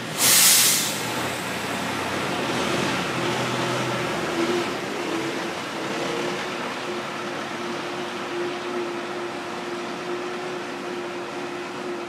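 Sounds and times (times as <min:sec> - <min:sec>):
water and tyres hissing: 0:00.0 - 0:02.0
truck engine hum: 0:00.8 - 0:12.0.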